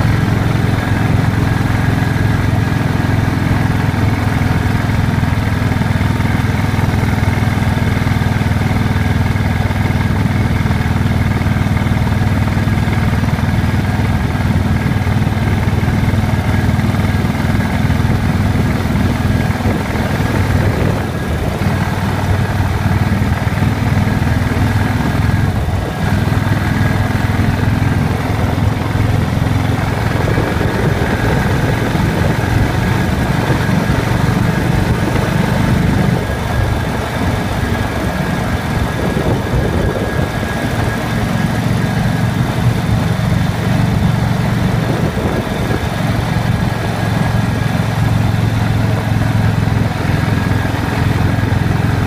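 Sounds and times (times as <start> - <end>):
motorcycle engine running: 0.0 - 52.0
wind noise: 12.2 - 52.0.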